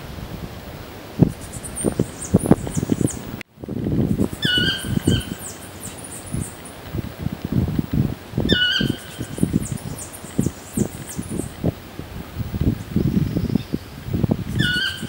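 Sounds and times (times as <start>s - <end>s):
birds chirping: 1.2s - 7.1s, 8.5s - 11.7s, 12.8s - 15.0s
rising bird call: 1.3s - 3.4s, 4.1s - 6.8s, 8.5s - 11.6s, 14.5s - 15.0s.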